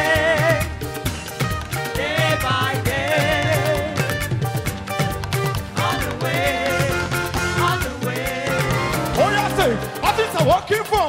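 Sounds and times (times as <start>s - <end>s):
person singing: 0.0s - 0.8s, 1.9s - 4.2s, 5.8s - 10.2s
bass: 0.0s - 11.0s
keyboard: 0.0s - 11.0s
steady drum beat: 0.0s - 11.0s.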